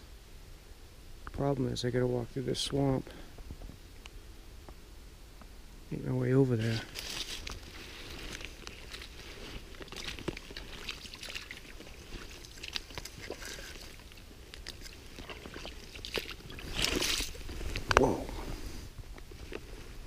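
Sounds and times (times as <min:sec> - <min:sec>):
boots crunching through wet leaf litter: 0:06.6 - 0:18.2
twigs snapping: 0:06.8 - 0:18.1.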